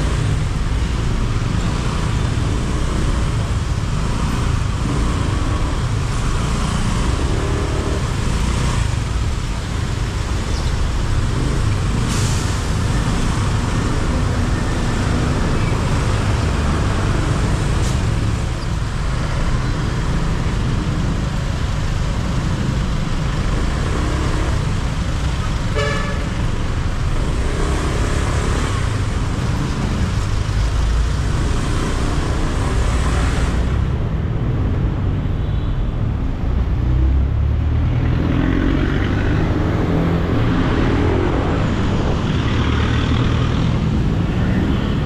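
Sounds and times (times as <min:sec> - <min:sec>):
city traffic rumble: 0:00.0 - 0:45.0.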